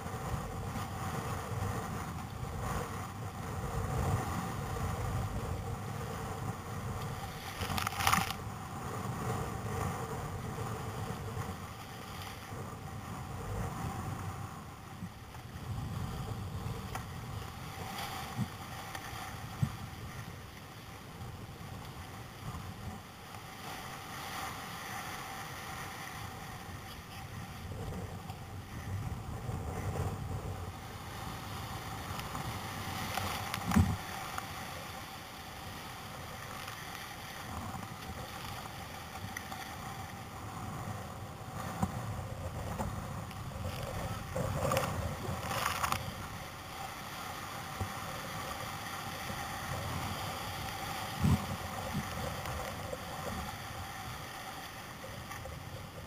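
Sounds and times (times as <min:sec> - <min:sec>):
rough sea and breaking whitewater: 0:00.0 - 0:56.0.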